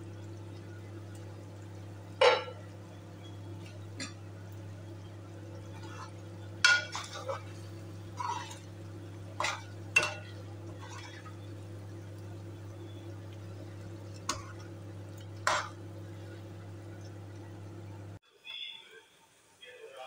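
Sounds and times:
steady low hum: 0.0 - 18.2
spoon scraping a metal pot: 8.2 - 8.7.

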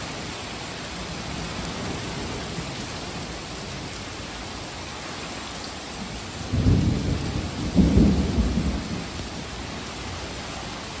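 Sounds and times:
steady rain hiss: 0.0 - 11.0
thunder rumbling: 6.0 - 9.8.

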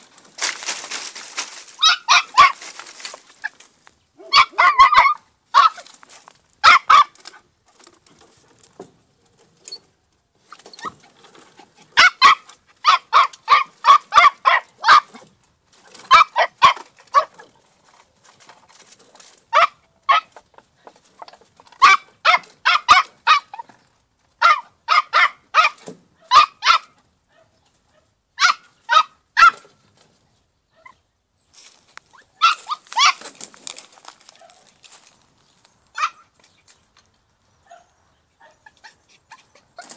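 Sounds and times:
puppy yapping: 1.8 - 2.6, 4.2 - 5.9, 6.6 - 7.2, 11.9 - 15.2, 24.4 - 29.7, 32.1 - 33.3, 36.0 - 36.3.

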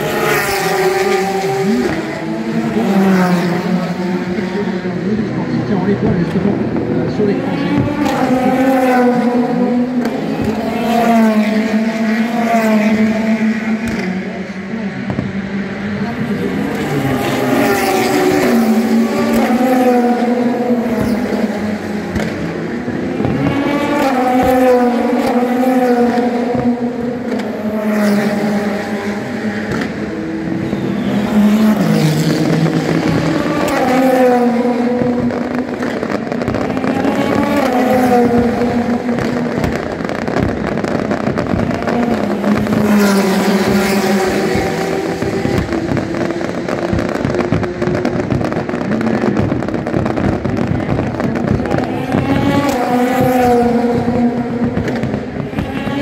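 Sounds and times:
race cars passing at speed: 0.0 - 56.0
fireworks crackling and popping: 34.7 - 53.6, 54.6 - 55.8.

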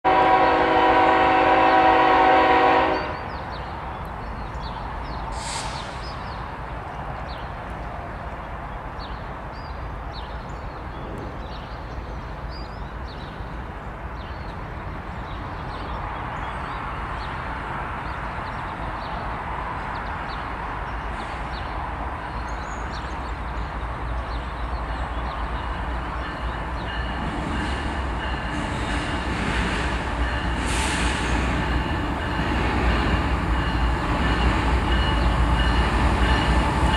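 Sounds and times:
diesel train rumble: 0.0 - 36.9
locomotive air horn: 0.1 - 3.3.

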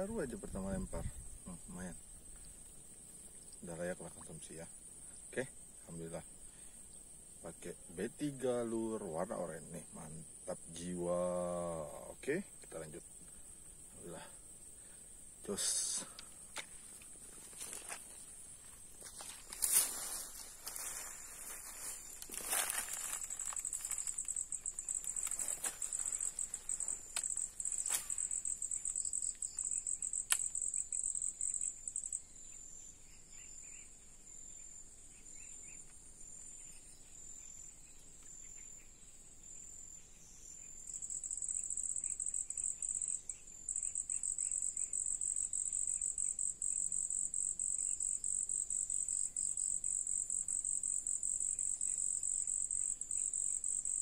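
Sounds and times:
insects droning: 0.0 - 54.0
sharp clicks: 30.2 - 30.6.

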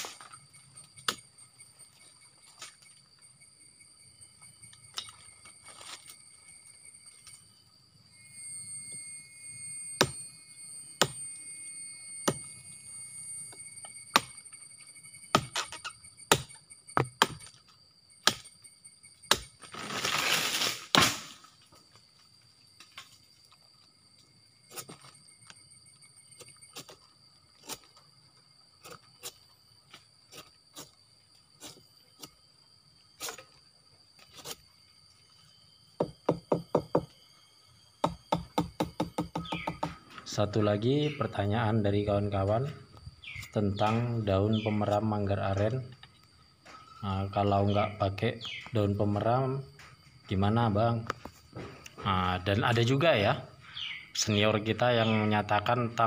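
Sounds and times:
machete chopping plant stalk: 18.2 - 18.5, 19.3 - 21.4.

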